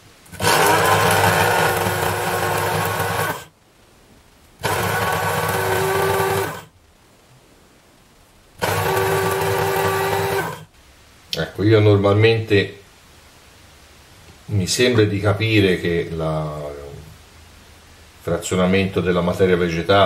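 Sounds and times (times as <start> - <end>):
electric blade grinder running: 0.4 - 3.5, 4.6 - 6.7, 8.6 - 10.7.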